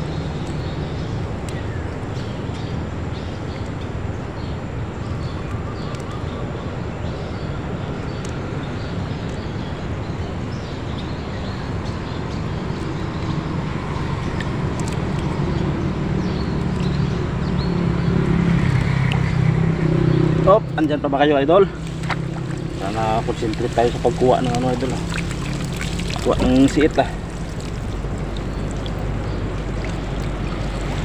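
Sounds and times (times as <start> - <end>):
motorboat engine running: 0.0 - 31.0
water dripping and splashing: 12.3 - 21.0, 21.6 - 31.0.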